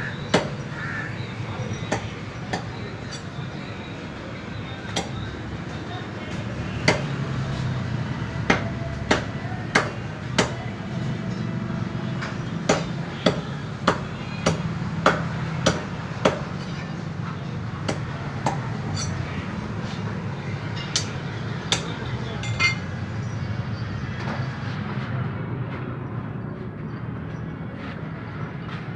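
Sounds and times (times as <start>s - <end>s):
cleaver chopping on wooden block: 12.7s - 16.5s.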